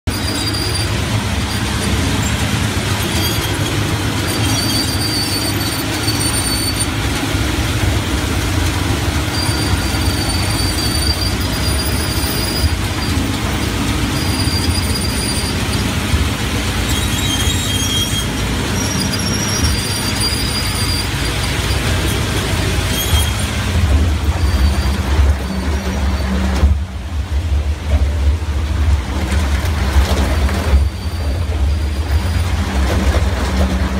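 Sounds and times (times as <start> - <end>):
high-pitched squeals: 0.1 - 7.1, 9.0 - 26.6
shredder rumbling: 20.6 - 33.9.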